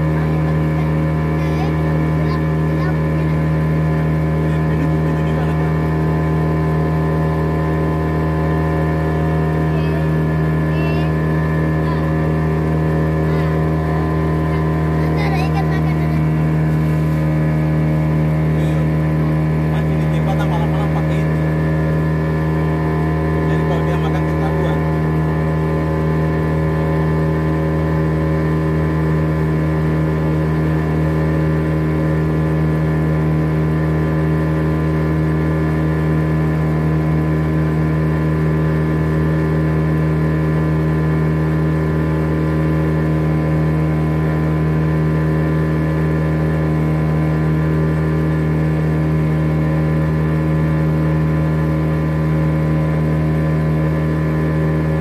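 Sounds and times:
boat engine running: 0.0s - 55.0s.

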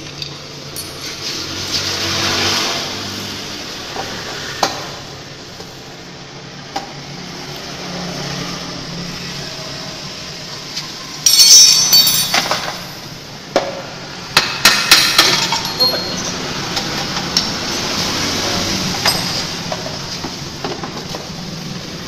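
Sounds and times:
metal tools clinking: 0.0s - 1.7s, 11.2s - 13.0s, 14.6s - 16.7s, 19.0s - 19.9s
metallic clatter: 11.3s - 13.0s.

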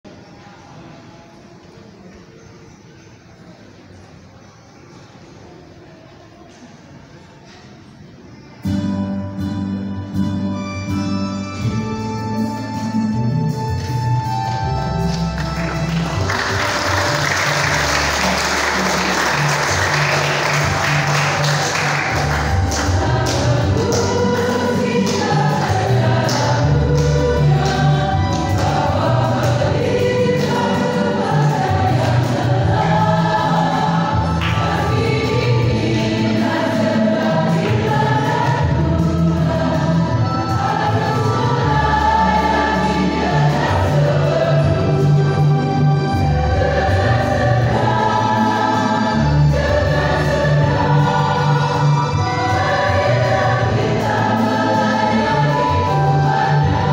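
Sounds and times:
low held accompaniment: 8.7s - 56.9s
choir singing gospel song: 14.3s - 56.9s.

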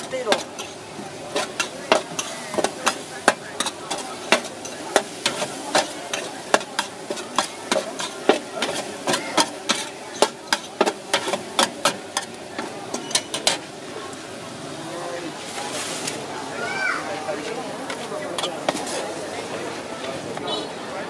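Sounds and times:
metal spatula scraping wok: 0.0s - 13.8s, 17.8s - 19.3s
food sizzling: 0.0s - 20.6s.

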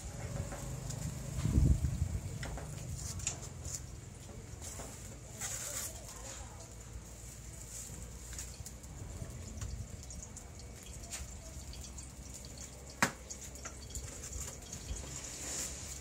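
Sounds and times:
utensils and dishes clicking: 8.4s - 16.0s.

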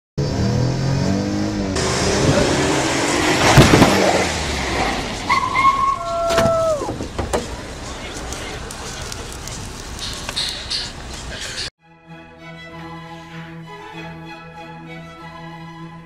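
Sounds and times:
car engine revving: 0.2s - 5.6s
road and wind noise: 0.2s - 11.7s.

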